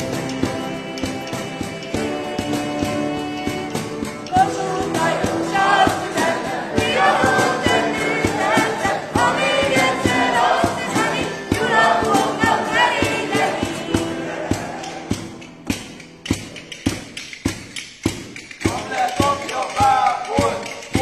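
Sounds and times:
group singing in unison: 0.0 - 16.0
strummed acoustic guitars: 0.0 - 21.0.

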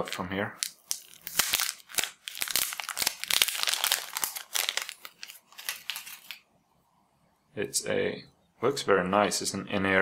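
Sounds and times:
packaging wrapper crinkling and tearing: 0.0 - 6.4.

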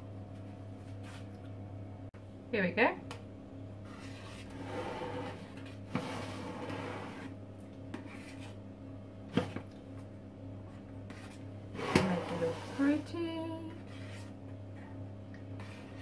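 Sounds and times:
spatula scraping batter: 3.8 - 8.6, 11.0 - 14.5, 15.5 - 16.0.

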